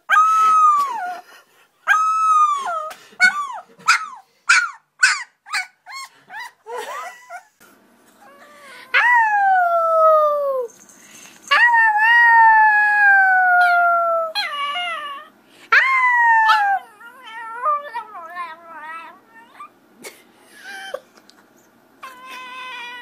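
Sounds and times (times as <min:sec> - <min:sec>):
dog yelping and whining: 0:00.0 - 0:01.2, 0:01.9 - 0:07.5, 0:12.9 - 0:19.8, 0:22.0 - 0:23.0
small dog howling: 0:01.9 - 0:03.6, 0:11.5 - 0:19.7, 0:22.0 - 0:23.0.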